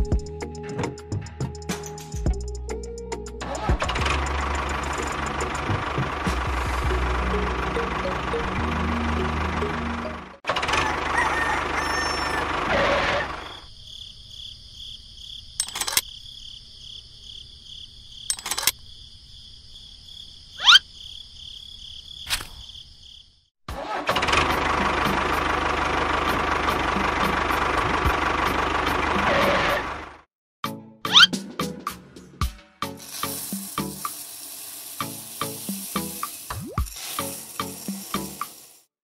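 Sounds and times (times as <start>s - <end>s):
vehicle engine running: 3.4s - 13.7s, 23.7s - 30.3s.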